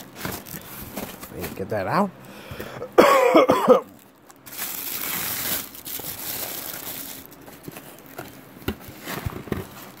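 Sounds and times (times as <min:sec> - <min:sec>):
tissue paper crinkling: 0:03.9 - 0:10.0.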